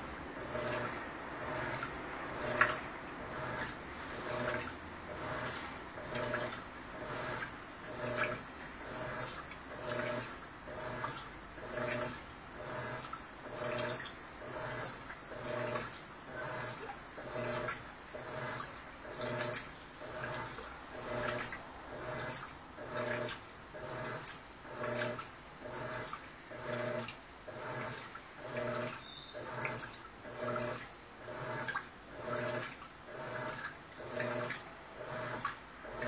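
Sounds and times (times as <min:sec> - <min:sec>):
washing machine motor humming: 0:00.0 - 0:36.0
water sloshing: 0:00.0 - 0:36.0.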